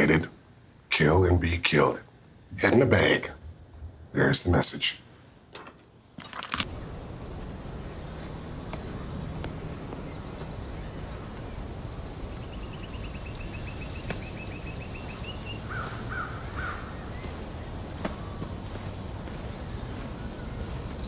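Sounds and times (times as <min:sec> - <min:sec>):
birds calling: 0:06.6 - 0:21.0
steady low rumble: 0:06.7 - 0:21.0.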